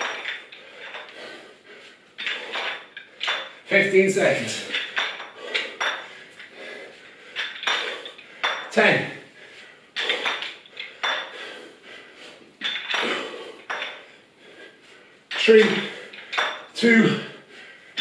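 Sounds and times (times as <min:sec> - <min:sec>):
dumbbell plates clanking: 0:00.0 - 0:01.4, 0:02.2 - 0:03.7, 0:04.4 - 0:08.8, 0:10.0 - 0:11.6, 0:12.6 - 0:14.2, 0:15.3 - 0:16.8.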